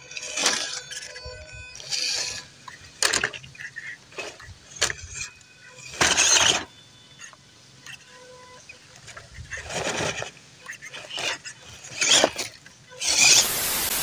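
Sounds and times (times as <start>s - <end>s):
tyres scrabbling on bark and leaves: 8.0s - 14.0s.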